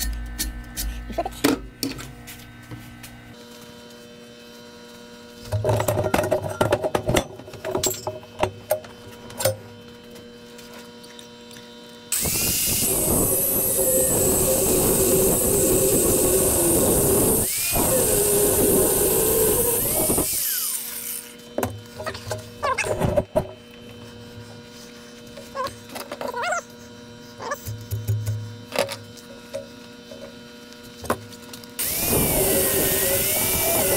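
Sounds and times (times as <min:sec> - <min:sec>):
angle grinder cutting steel: 0:12.1 - 0:21.4, 0:31.8 - 0:33.9.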